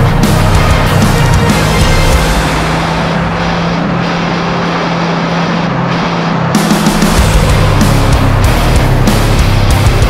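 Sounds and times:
loud background music: 0.0s - 10.0s.

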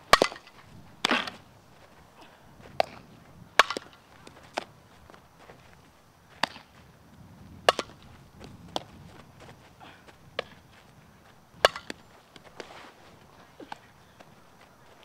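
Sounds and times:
bat striking ball: 0.1s - 1.2s, 3.6s - 4.0s, 7.6s - 8.0s, 11.6s - 12.0s
ball smacking into gloves: 11.6s - 12.5s.

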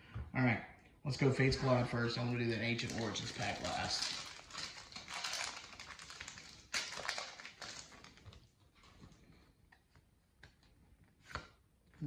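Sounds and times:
foil wrapper crinkling: 2.1s - 8.9s.

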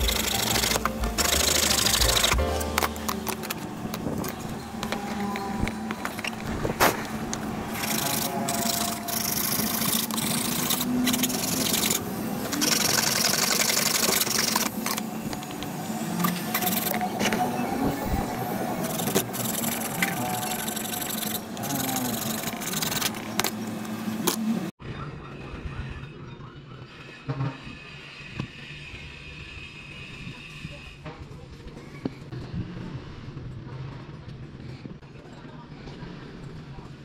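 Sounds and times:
power saw motor hum: 0.0s - 23.4s.

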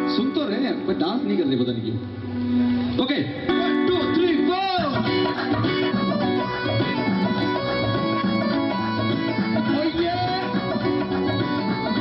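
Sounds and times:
live band playing bhangra music: 0.0s - 12.0s
plucked string lines: 2.4s - 12.0s.

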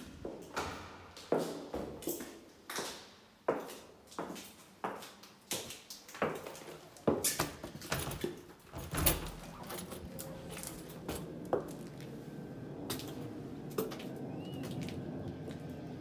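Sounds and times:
outdoor background hum: 0.0s - 16.0s
footsteps and handling knocks: 0.2s - 12.1s.

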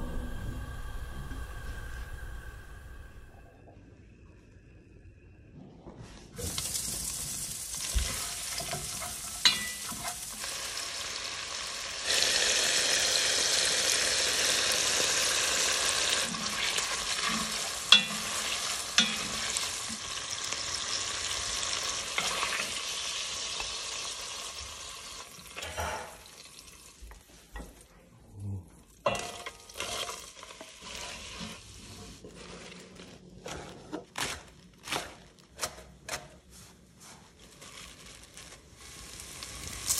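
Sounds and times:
sausage sizzling in pot: 6.4s - 27.8s, 29.0s - 33.2s, 37.9s - 39.9s.

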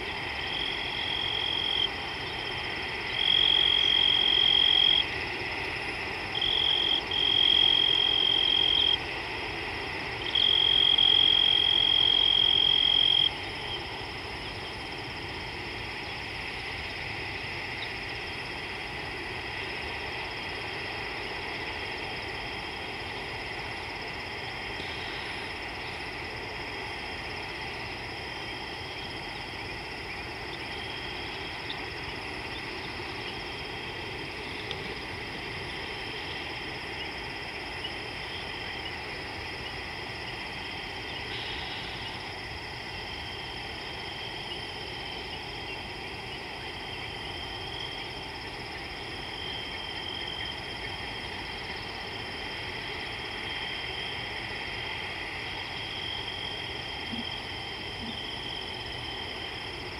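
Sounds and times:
insects and frogs chorus: 0.0s - 59.9s.

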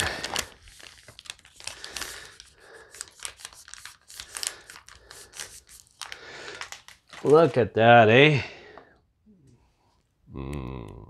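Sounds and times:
plastic pouch crinkling: 0.0s - 7.6s.

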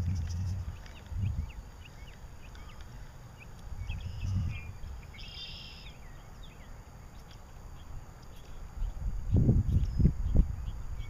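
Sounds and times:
low rumble: 0.0s - 2.1s, 3.8s - 5.0s
small birds chirping: 0.0s - 11.0s.

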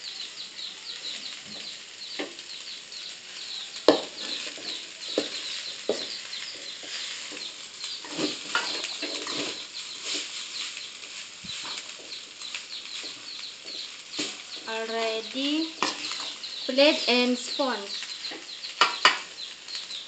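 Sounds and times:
small birds cheeping: 0.0s - 20.0s
spatula scraping in a metal wok: 3.8s - 14.5s.

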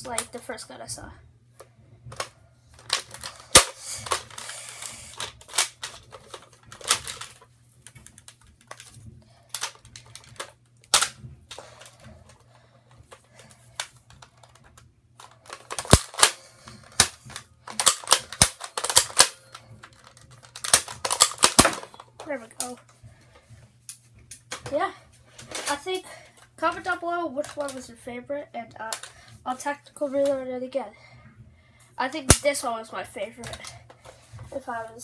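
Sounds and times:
toy blaster plastic clicks: 2.9s - 7.2s, 15.5s - 22.0s.

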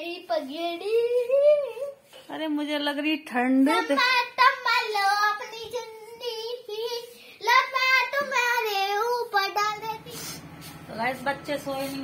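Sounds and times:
girl singing in high voice: 0.0s - 2.1s, 3.7s - 10.2s.

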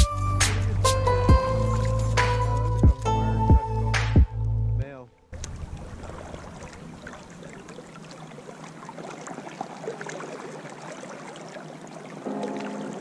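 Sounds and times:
river water flowing: 0.0s - 13.0s
small water splashes: 5.3s - 13.0s.

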